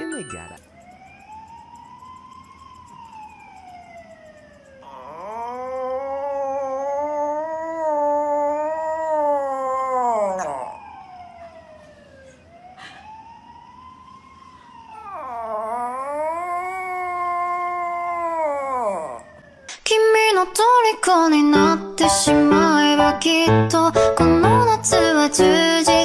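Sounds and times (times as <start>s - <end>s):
small dog howling: 4.8s - 11.1s, 14.9s - 19.5s.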